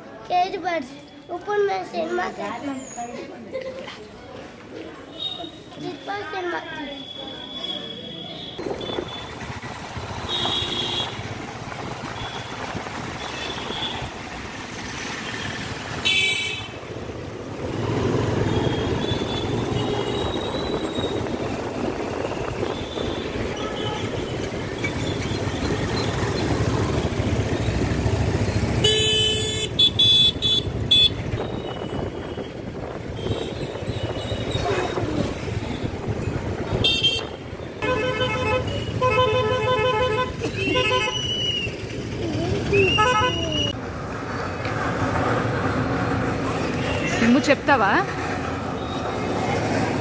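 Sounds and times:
traffic rumble: 0:00.0 - 0:50.0
vehicle horns honking: 0:10.2 - 0:11.3, 0:15.4 - 0:16.8, 0:28.8 - 0:32.5, 0:33.1 - 0:35.1, 0:36.7 - 0:41.7, 0:42.8 - 0:43.7.

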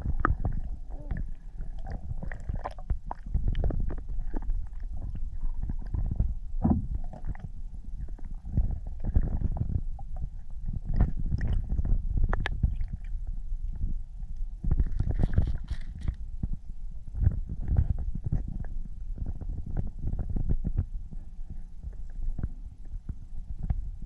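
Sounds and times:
underwater knocks and clicks: 0:00.0 - 0:21.2, 0:21.8 - 0:24.0
muffled underwater rumble: 0:00.0 - 0:24.0.

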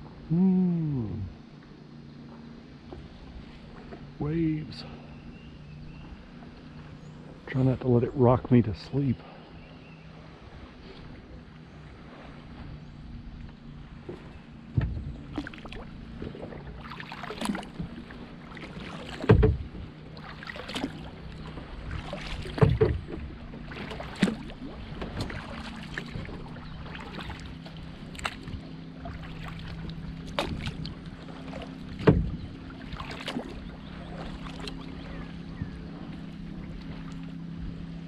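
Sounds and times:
paddle splashing in water: 0:09.3 - 0:38.0
thumps against plastic hull: 0:14.1 - 0:15.4, 0:19.1 - 0:19.8, 0:22.4 - 0:23.2, 0:32.0 - 0:32.4.

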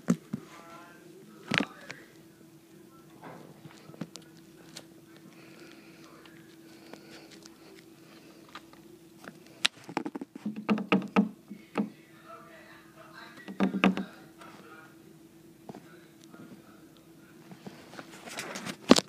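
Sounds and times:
faint steady hum: 0:00.0 - 0:19.0
loud knocks and taps: 0:10.0 - 0:11.9, 0:13.5 - 0:14.1.

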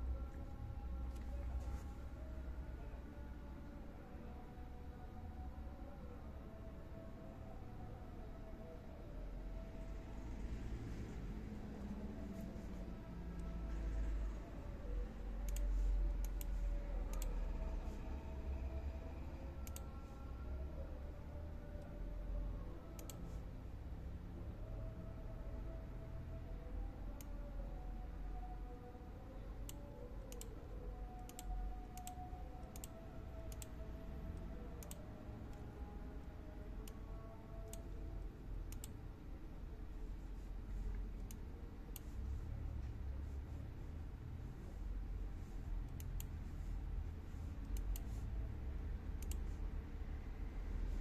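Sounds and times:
faint low hum: 0:00.0 - 0:51.0
computer mouse clicks: 0:15.4 - 0:17.4, 0:19.6 - 0:19.9, 0:23.0 - 0:23.3, 0:29.7 - 0:30.6, 0:31.2 - 0:33.8, 0:34.8 - 0:35.0, 0:37.7 - 0:37.9, 0:38.7 - 0:39.0, 0:40.9 - 0:42.2, 0:45.8 - 0:46.5, 0:47.6 - 0:48.2, 0:49.2 - 0:49.6.

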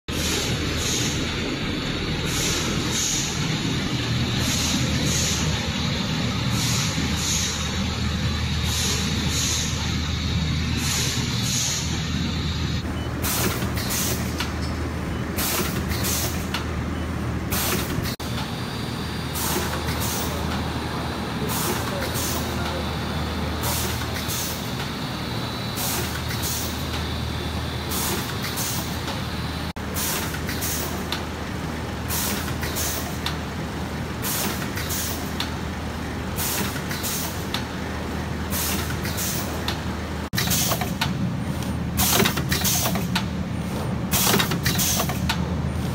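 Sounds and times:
pneumatic air hisses: 0:00.1 - 0:01.3, 0:02.2 - 0:03.8, 0:04.4 - 0:07.8, 0:08.5 - 0:14.3, 0:15.4 - 0:16.5, 0:19.3 - 0:20.4, 0:21.5 - 0:22.5, 0:23.6 - 0:26.9, 0:27.9 - 0:29.2, 0:30.0 - 0:31.0, 0:32.1 - 0:33.2, 0:34.2 - 0:35.3, 0:36.4 - 0:37.5, 0:38.5 - 0:39.6, 0:40.4 - 0:40.9, 0:42.0 - 0:43.1, 0:44.1 - 0:45.2.

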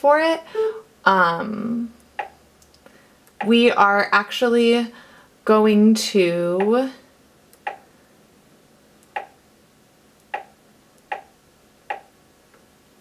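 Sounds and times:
stylus clicks on touchscreen: 0:07.6 - 0:07.8, 0:09.0 - 0:09.4, 0:10.2 - 0:11.3, 0:11.9 - 0:12.1.

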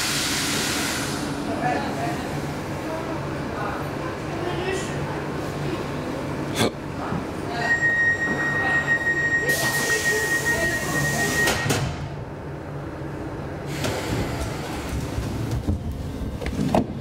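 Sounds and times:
loud air hiss: 0:00.0 - 0:01.4
train rumbling: 0:00.0 - 0:17.0
high brake squeal: 0:07.5 - 0:11.8.

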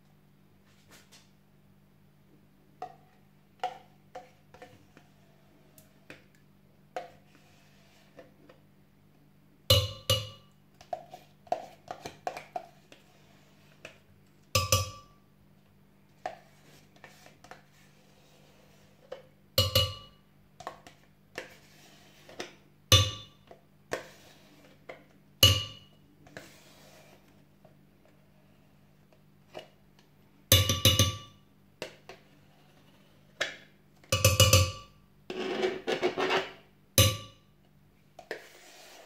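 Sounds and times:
spoon scraping in yogurt tub: 0:07.0 - 0:08.6, 0:10.8 - 0:14.1, 0:16.2 - 0:19.3, 0:20.6 - 0:22.6, 0:23.4 - 0:25.1, 0:25.8 - 0:28.9, 0:38.2 - 0:39.0.

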